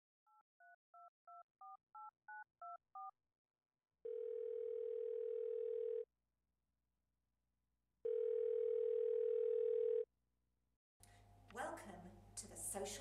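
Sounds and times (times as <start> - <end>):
touch-tone dialling beeps: 1.0 - 3.1
steady telephone tone: 4.0 - 6.1, 8.0 - 10.1.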